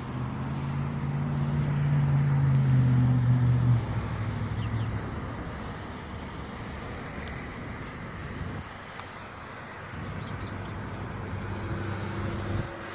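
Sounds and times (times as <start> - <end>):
vehicle engine humming: 0.0 - 12.9
bird chirping: 4.3 - 5.0, 10.0 - 10.9.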